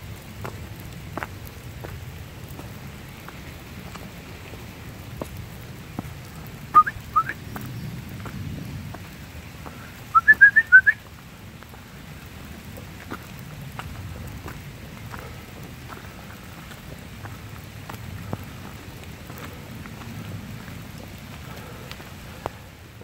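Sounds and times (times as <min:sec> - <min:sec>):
rising whistled chirps: 0:06.8 - 0:07.4, 0:10.1 - 0:11.0.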